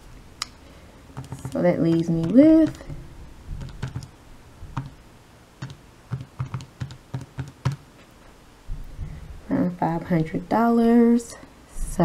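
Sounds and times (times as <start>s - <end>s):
calculator buttons tapping: 1.2s - 2.8s, 3.6s - 4.1s, 4.8s - 5.0s, 5.6s - 7.8s.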